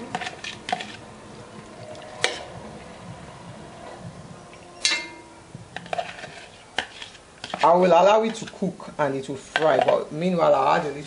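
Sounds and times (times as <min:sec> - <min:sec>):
metal spoon scraping plastic bowl: 0:00.0 - 0:01.1, 0:05.7 - 0:08.7, 0:09.4 - 0:10.1.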